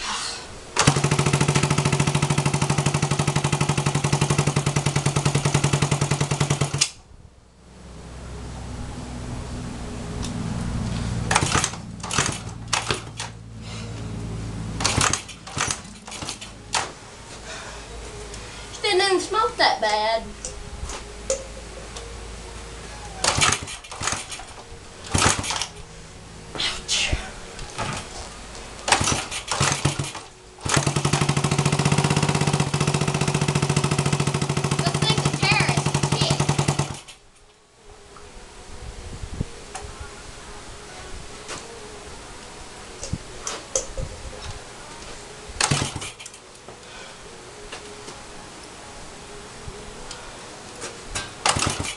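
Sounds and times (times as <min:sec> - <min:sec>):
motorcycle engine running rough: 0:00.8 - 0:06.8, 0:28.9 - 0:37.1
engine popping and sputtering: 0:00.8 - 0:06.9, 0:11.2 - 0:13.4, 0:14.8 - 0:16.8, 0:23.2 - 0:25.7, 0:28.9 - 0:37.2, 0:45.6 - 0:46.3, 0:51.4 - 0:51.9.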